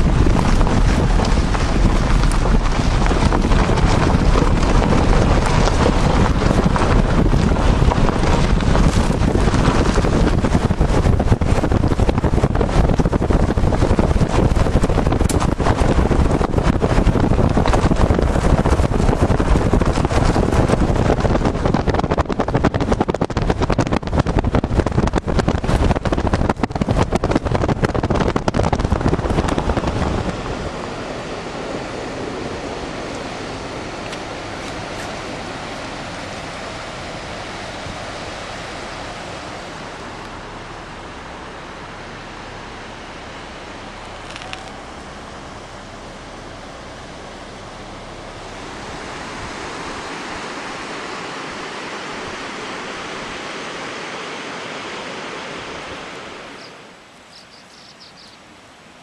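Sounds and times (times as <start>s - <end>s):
wind buffeting microphone: 0.0s - 58.2s
rushing river water: 28.3s - 45.7s, 47.0s - 59.0s.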